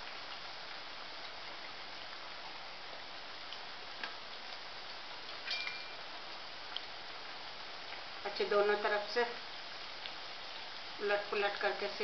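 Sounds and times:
food deep-frying in oil: 0:00.0 - 0:12.0
small pops and crackles: 0:03.4 - 0:04.6, 0:06.7 - 0:07.0, 0:09.8 - 0:10.8.

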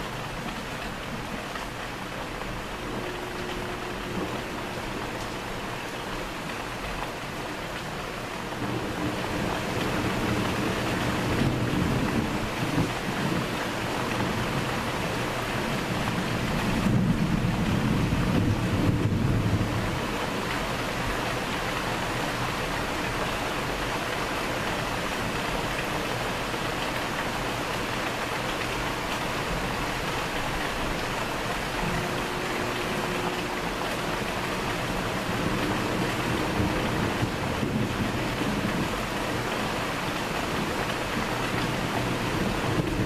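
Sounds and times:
steady rain: 0:00.0 - 0:43.0
thunder rumbling: 0:02.6 - 0:06.2, 0:31.7 - 0:43.0.

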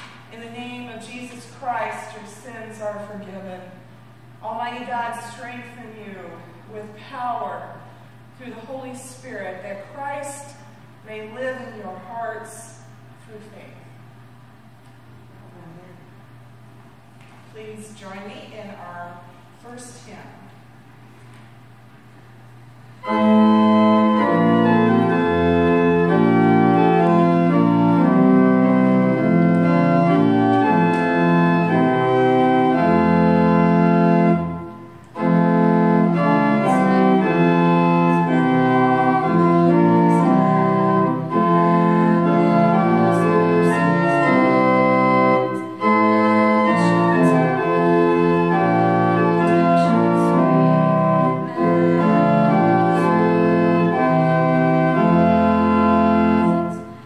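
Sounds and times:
pipe organ playing hymn chords: 0:22.5 - 0:57.0.

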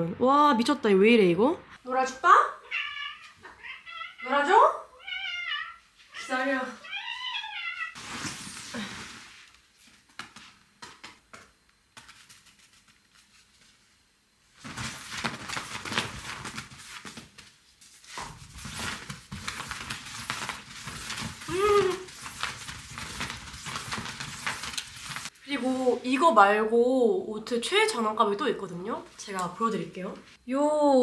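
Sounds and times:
cat call: 0:02.6 - 0:08.0
bedding rustling and scratching: 0:08.0 - 0:10.0, 0:14.5 - 0:25.3.

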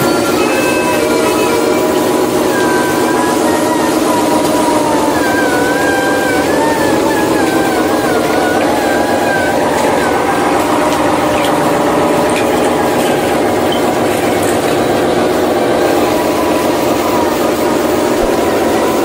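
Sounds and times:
toy truck engine drone: 0:00.0 - 0:19.0.

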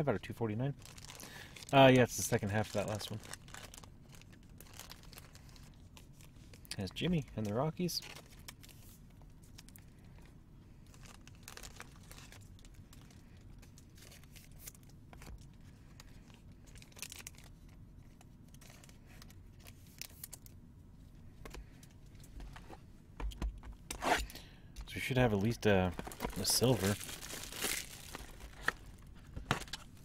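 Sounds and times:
packaging rustling and crinkling: 0:00.8 - 0:06.6, 0:08.0 - 0:20.5, 0:25.4 - 0:30.0.

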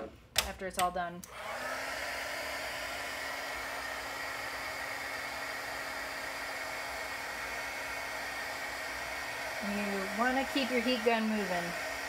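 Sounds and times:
heat gun blowing hot air: 0:01.3 - 0:12.0.

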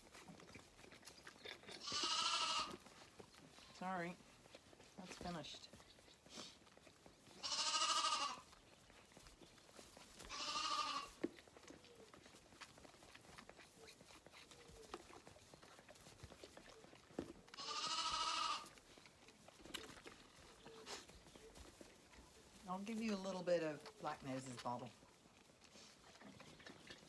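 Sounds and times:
lambs bleating: 0:01.8 - 0:02.8, 0:07.4 - 0:08.5, 0:10.2 - 0:11.2, 0:17.5 - 0:18.8.

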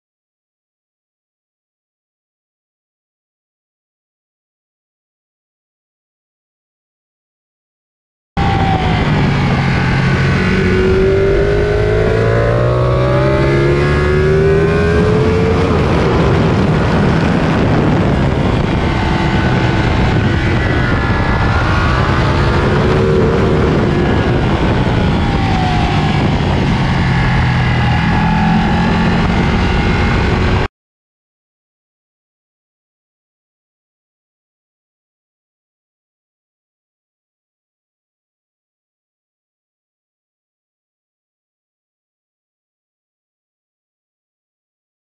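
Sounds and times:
motorcycle engine accelerating: 0:08.4 - 0:30.7
wind noise on microphone: 0:08.4 - 0:30.7.

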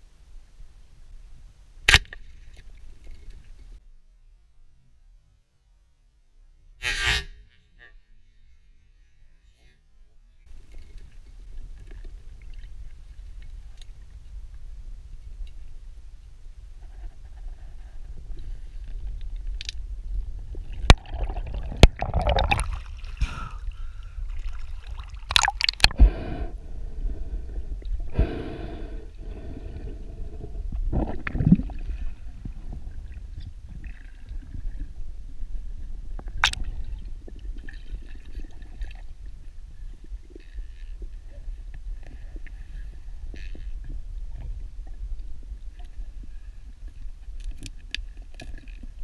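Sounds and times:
underwater rumble of moving water: 0:10.5 - 0:49.0.

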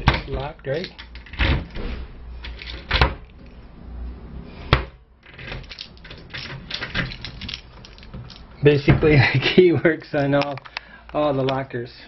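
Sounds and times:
key rattling in lock: 0:05.3 - 0:08.6.

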